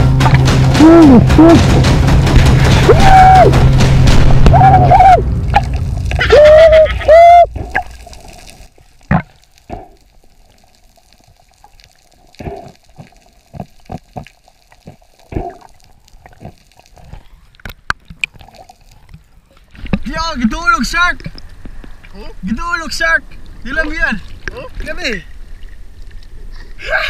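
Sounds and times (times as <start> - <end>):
underwater thump: 0.0 - 6.3, 7.5 - 8.2, 9.1 - 10.0
muffled underwater knocks and clicks: 16.3 - 20.1.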